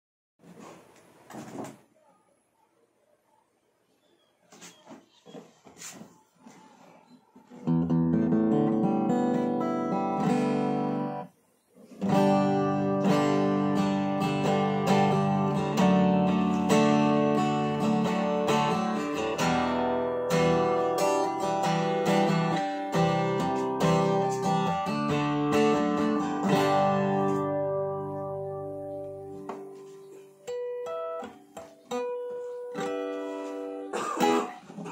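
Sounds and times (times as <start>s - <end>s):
acoustic guitar fingerpicked: 7.4s - 34.9s.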